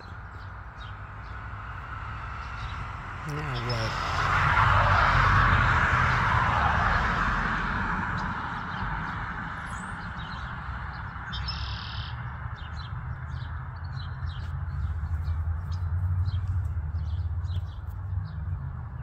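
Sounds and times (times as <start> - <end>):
high bird chirps: 11.3 - 12.2.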